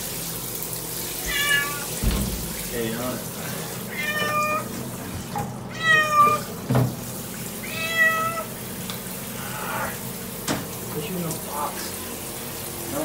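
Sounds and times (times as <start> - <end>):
cat meowing: 1.1 - 2.0, 3.8 - 4.7, 5.7 - 6.6, 7.6 - 8.6
soft thump: 2.0 - 2.6.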